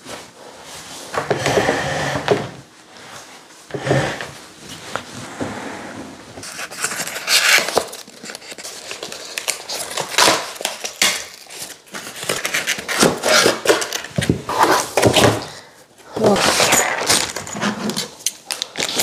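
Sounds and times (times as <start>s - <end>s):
cardboard tearing and crinkling: 6.4s - 15.6s, 16.2s - 19.0s.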